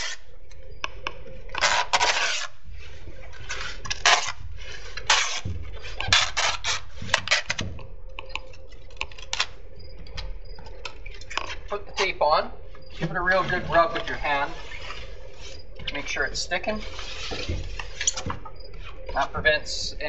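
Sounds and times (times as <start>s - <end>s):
tape pulled off roll: 1.5s - 7.9s.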